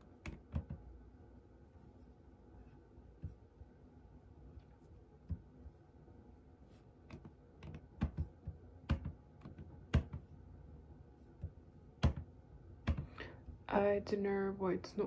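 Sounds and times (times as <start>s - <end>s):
computer key presses and clicks: 0.2s - 0.8s, 7.1s - 10.2s, 11.4s - 13.1s.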